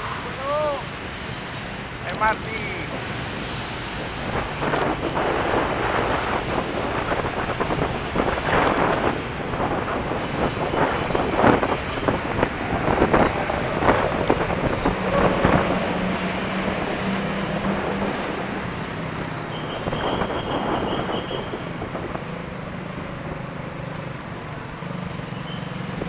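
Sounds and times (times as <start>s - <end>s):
rolling road noise: 0.0s - 26.0s
wind buffeting microphone: 3.0s - 23.4s.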